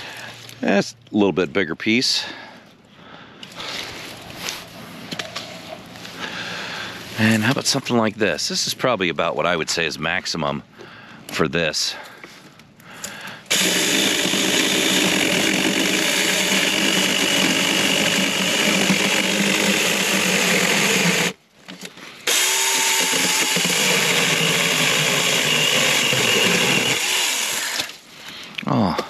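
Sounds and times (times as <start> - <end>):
electric chainsaw cutting log: 13.5 - 21.4, 22.2 - 28.0.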